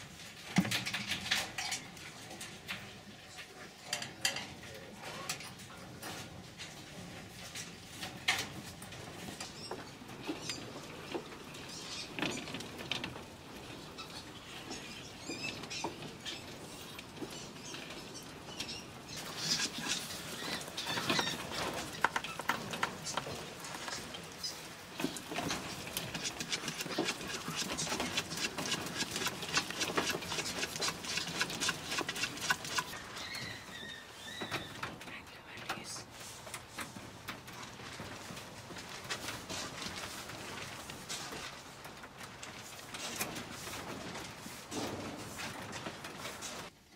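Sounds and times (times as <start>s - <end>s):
claws rattling on cage wire: 5.1s - 33.4s.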